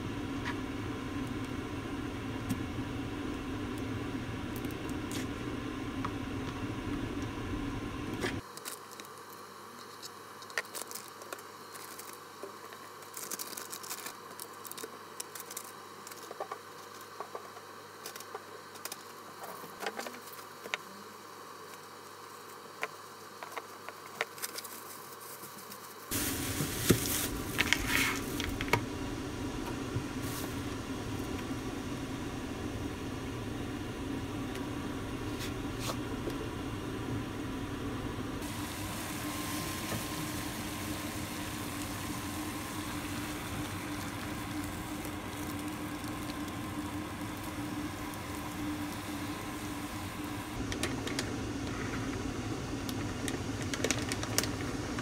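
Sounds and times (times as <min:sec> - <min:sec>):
steady background hum: 0:00.0 - 0:55.0
plastic bag crinkling: 0:12.9 - 0:16.4, 0:53.2 - 0:54.8.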